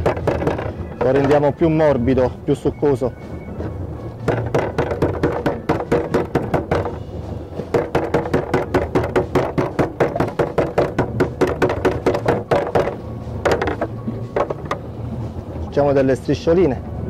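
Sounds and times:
meat mallet pounding squid: 0.0s - 1.5s, 4.2s - 14.8s.

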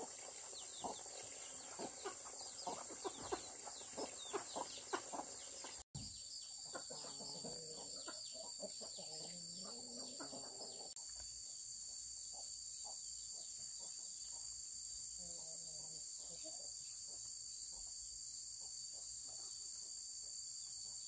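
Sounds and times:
chickens clucking: 0.0s - 5.8s, 6.4s - 11.0s
high insect drone: 0.0s - 21.0s.

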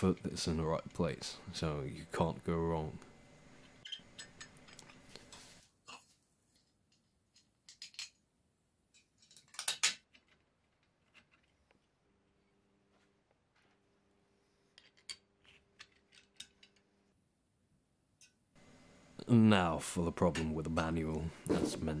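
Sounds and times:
faint steady hum: 0.0s - 9.5s, 10.2s - 22.0s
metal parts clinking: 8.9s - 10.4s.

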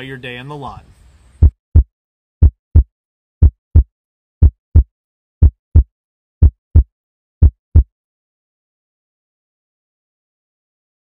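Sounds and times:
heartbeat double thump: 1.4s - 7.9s.

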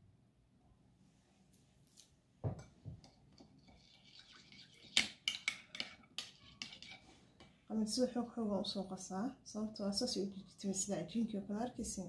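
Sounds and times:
soft thump: 2.4s - 3.0s
metal spoon scraping bowl: 3.6s - 7.5s.

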